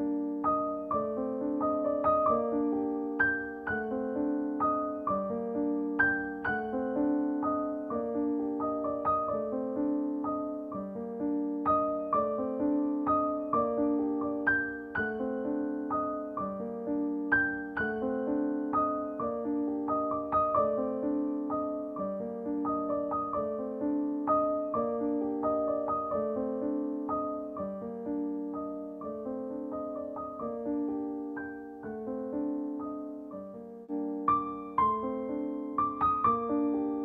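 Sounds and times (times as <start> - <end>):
piano music: 0.0 - 37.0.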